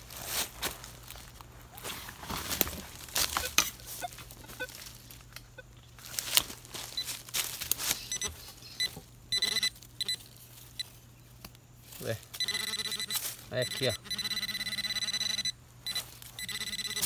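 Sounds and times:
rustling and scraping of dry leaves: 0:00.0 - 0:09.2, 0:09.8 - 0:12.4, 0:13.0 - 0:13.9, 0:15.9 - 0:16.4
metal detector pinpointer beeping: 0:03.3 - 0:04.8, 0:08.0 - 0:10.9, 0:12.4 - 0:17.0.

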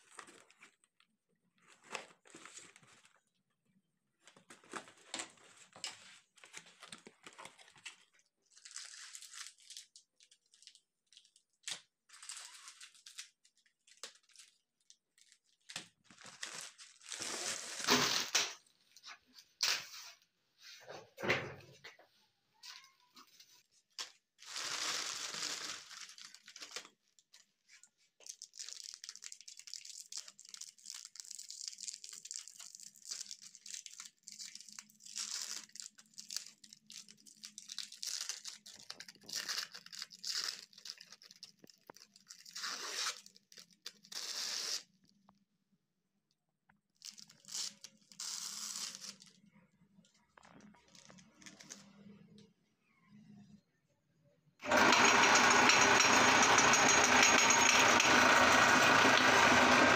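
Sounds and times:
foil wrappers tearing and crinkling: 0:06.8 - 0:18.7, 0:24.4 - 0:27.2, 0:28.2 - 0:44.9, 0:47.0 - 0:49.4.

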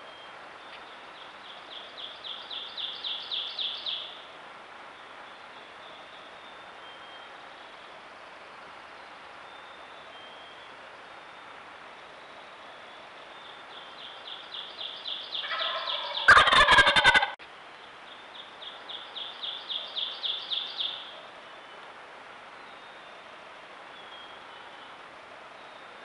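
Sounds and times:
turkey gobbling: 0:15.4 - 0:17.4.

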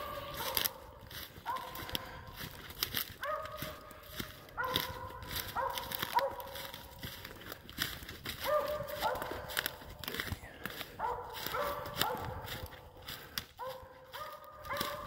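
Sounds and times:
dog barking: 0:00.0 - 0:15.0
footsteps crunching through leaves: 0:00.0 - 0:15.0.

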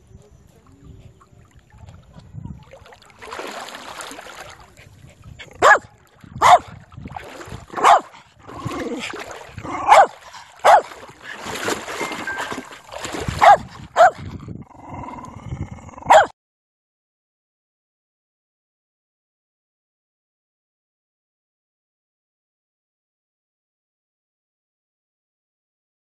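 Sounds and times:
dog barking: 0:05.5 - 0:06.7, 0:07.7 - 0:08.2, 0:09.7 - 0:11.0, 0:13.3 - 0:14.2, 0:16.0 - 0:16.3.

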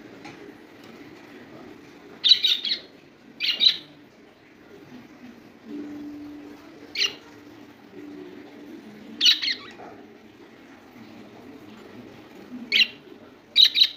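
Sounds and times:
budgerigars chirping: 0:02.2 - 0:03.9, 0:13.6 - 0:13.9.

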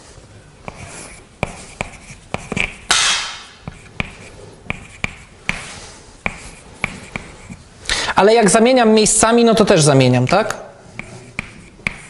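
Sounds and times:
chalk tapping on blackboard: 0:00.6 - 0:07.6, 0:10.3 - 0:12.0
chalk scratching stroke: 0:00.6 - 0:07.7, 0:10.9 - 0:12.0.

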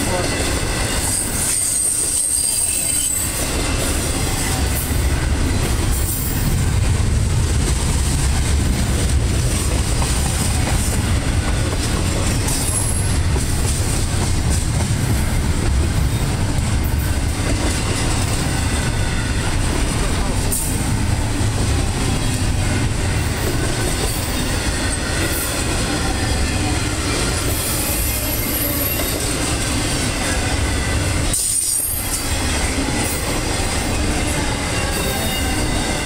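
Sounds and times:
high wheel squeal: 0:00.0 - 0:05.2, 0:30.2 - 0:36.0
train wheels rumbling on track: 0:00.0 - 0:36.0.

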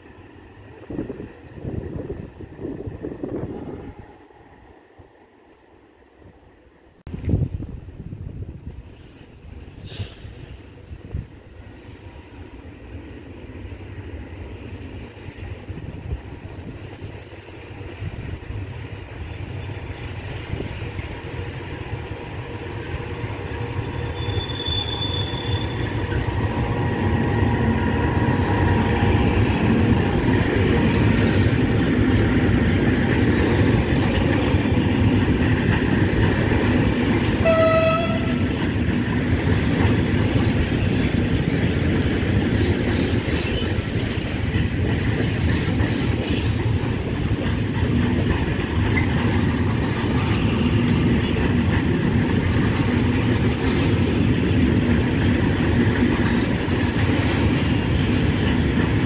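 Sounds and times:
train rumble: 0:00.0 - 0:59.0
wagon wheels rolling on rails: 0:28.4 - 0:59.0.

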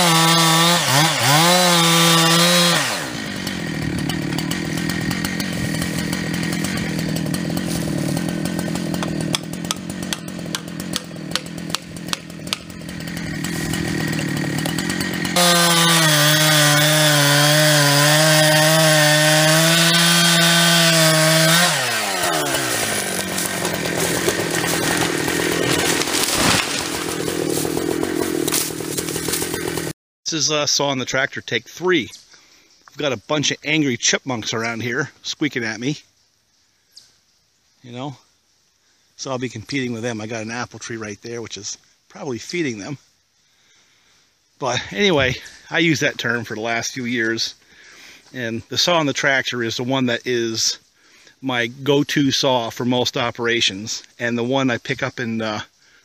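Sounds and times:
chainsaw cutting and idling: 0:00.0 - 0:30.0
sharp cracks: 0:22.0 - 0:29.9.

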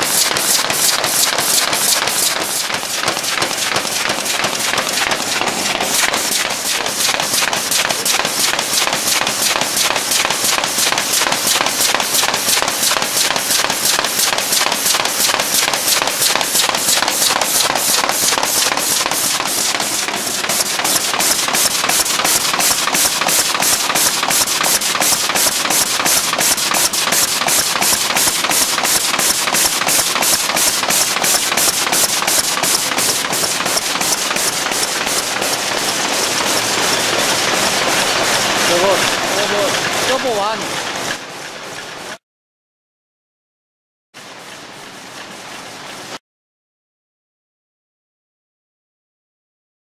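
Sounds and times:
machine clattering: 0:00.0 - 0:42.1.

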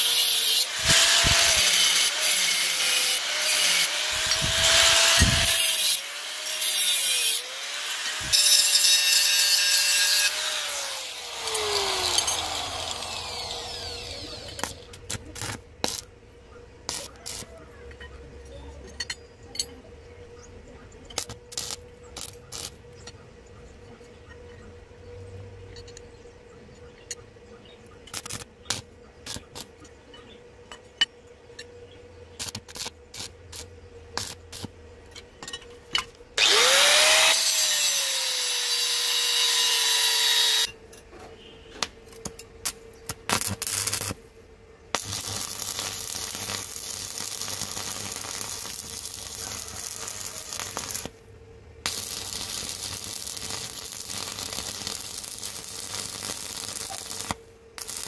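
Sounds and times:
welding arc crackling hiss: 0:00.0 - 0:16.0, 0:16.9 - 0:17.5, 0:21.2 - 0:22.8, 0:42.6 - 0:44.2, 0:45.0 - 0:51.2, 0:51.9 - 0:58.0
steady electrical hum: 0:31.3 - 0:58.0.

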